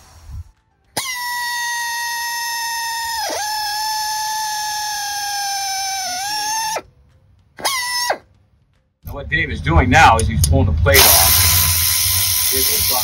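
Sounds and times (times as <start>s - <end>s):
right-angle drill whining: 0.0s - 6.9s.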